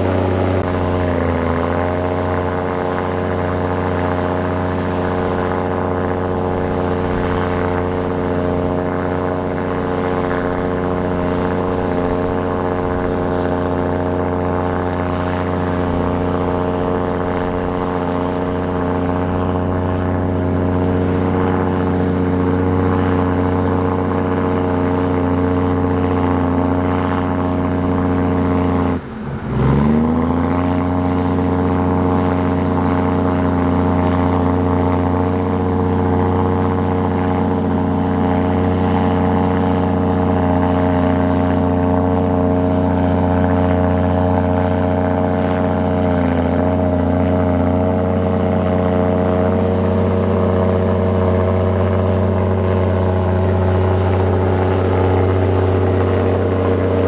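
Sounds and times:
heavy diesel engine running: 0.0s - 57.0s.

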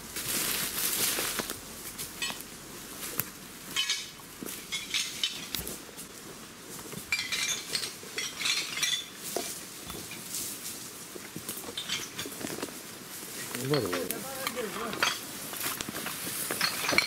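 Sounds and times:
rustling leaves and twigs: 0.0s - 17.0s
rubbish clinking and rattling: 3.6s - 5.9s, 6.8s - 10.7s, 11.5s - 12.8s, 13.4s - 17.0s.

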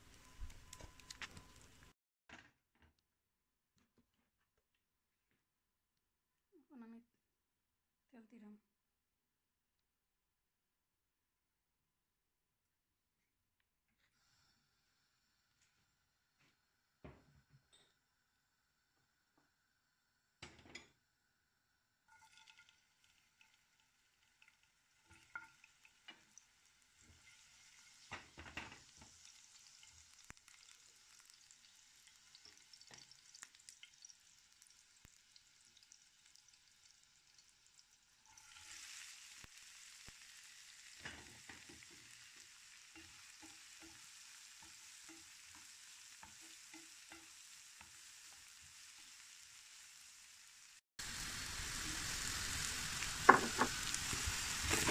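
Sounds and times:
onion sizzling in oil: 0.0s - 1.9s, 22.1s - 54.9s.

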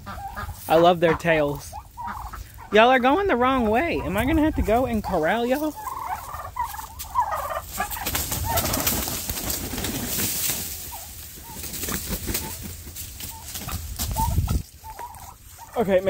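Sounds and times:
turkeys cooing: 0.0s - 16.0s.

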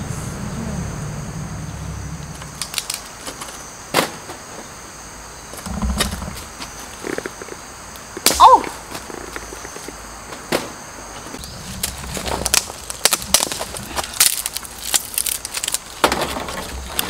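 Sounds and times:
dry sticks snapping: 2.4s - 3.5s, 11.4s - 16.0s
sticks clattering in metal fire pit: 11.7s - 17.0s.

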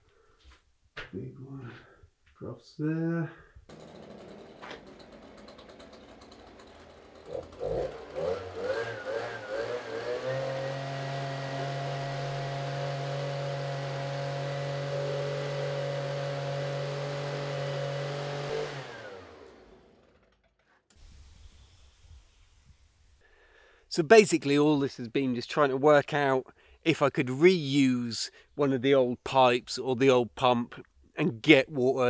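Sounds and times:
leaf blower engine running: 3.7s - 23.0s.

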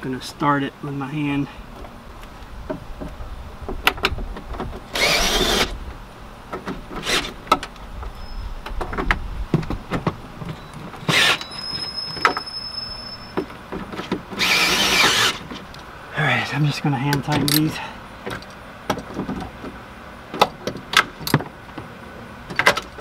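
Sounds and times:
cordless screwdriver running: 4.9s - 5.7s, 14.4s - 15.4s
tools clicking and rattling: 17.1s - 19.5s.

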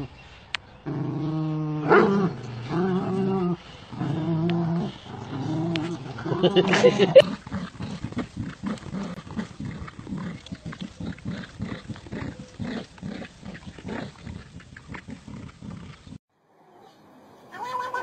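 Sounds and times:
dogs growling in play: 0.8s - 16.2s.

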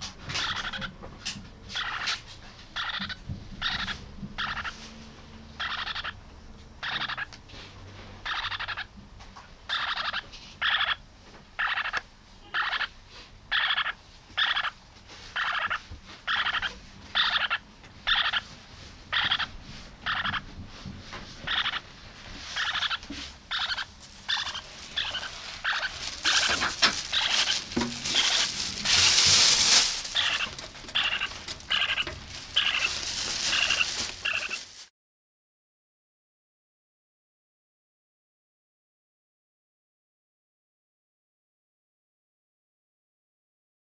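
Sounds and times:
parakeet chick calling: 0.3s - 1.0s, 1.8s - 2.2s, 2.8s - 4.8s, 5.6s - 6.2s, 6.8s - 7.3s, 8.2s - 8.9s, 9.7s - 11.0s, 11.6s - 12.9s, 13.5s - 18.4s, 19.1s - 20.5s, 21.4s - 21.9s, 22.6s - 34.6s
loud rustling: 23.1s - 34.9s.

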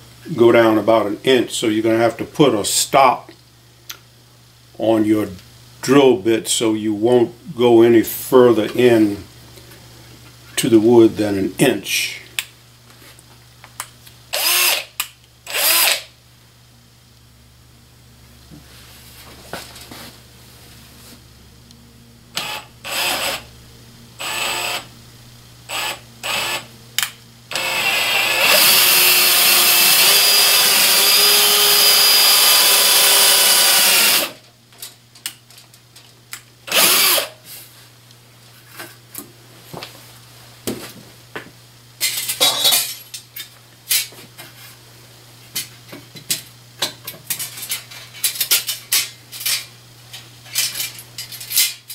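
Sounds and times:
cordless drill boring into wood: 14.4s - 14.9s, 15.5s - 16.0s, 22.4s - 23.4s, 24.2s - 24.8s, 25.7s - 26.6s, 27.5s - 34.4s, 36.7s - 37.3s.

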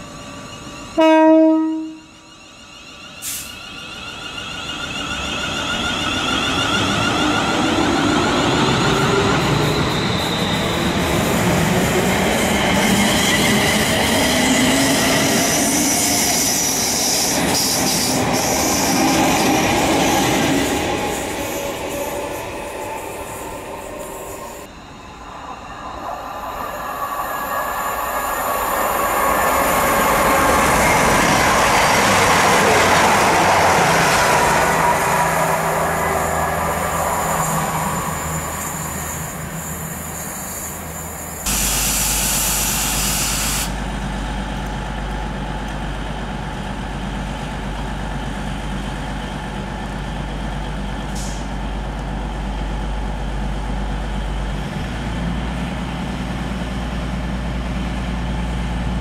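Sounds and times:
diesel train passing: 0.0s - 59.0s
air hiss: 3.2s - 3.6s, 36.3s - 43.8s, 51.2s - 51.6s.

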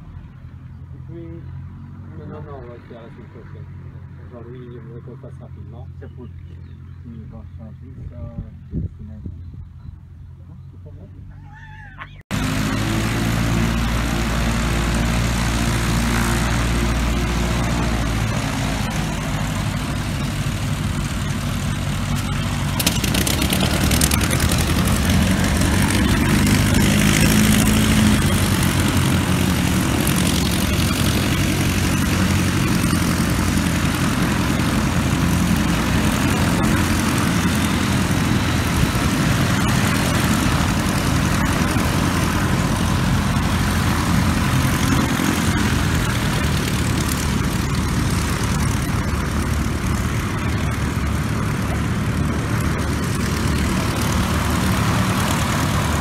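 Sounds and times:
propeller aircraft taxiing: 12.0s - 56.0s.

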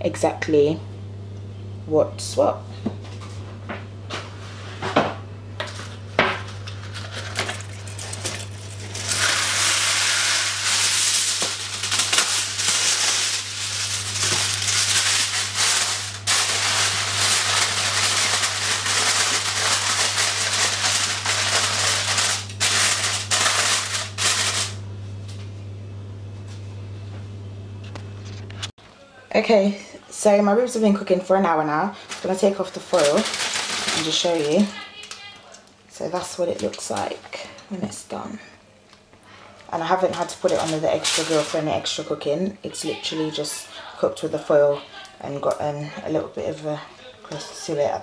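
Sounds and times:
aluminium foil crinkling: 5.6s - 24.8s, 31.0s - 37.6s, 39.7s - 43.5s.

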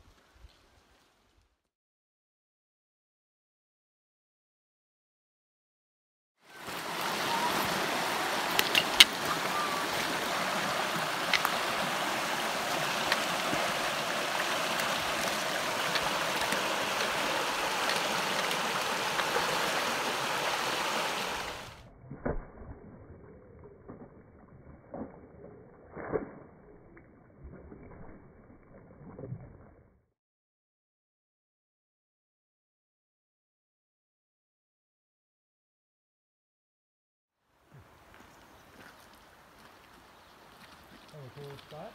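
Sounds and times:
rocky stream rushing: 6.5s - 21.8s
splashes of wading: 6.5s - 29.8s.

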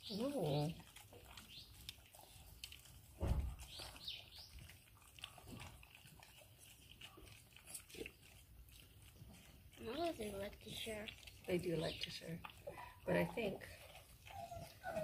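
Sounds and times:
puppies chewing and smacking: 0.0s - 15.0s
thump: 3.2s - 3.7s.

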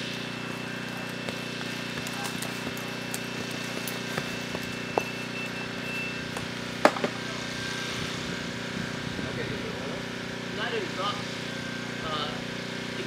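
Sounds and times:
footsteps on muddy ground: 0.0s - 6.6s
motor humming: 0.0s - 13.0s.

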